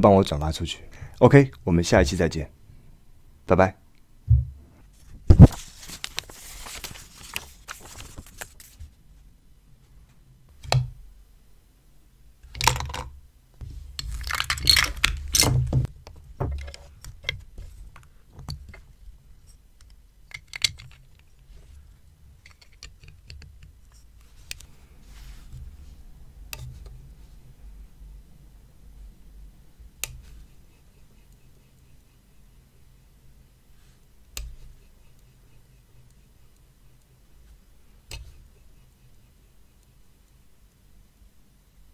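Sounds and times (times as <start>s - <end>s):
plastic toy bricks clicking: 12.5s - 13.1s, 14.0s - 15.5s, 20.3s - 21.1s, 22.4s - 23.7s.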